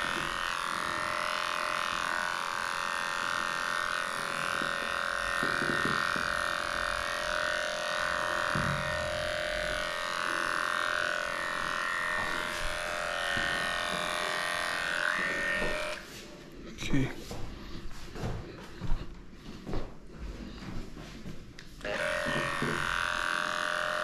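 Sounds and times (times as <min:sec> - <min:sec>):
dog clipper motor humming: 0:00.0 - 0:16.1, 0:21.8 - 0:24.0.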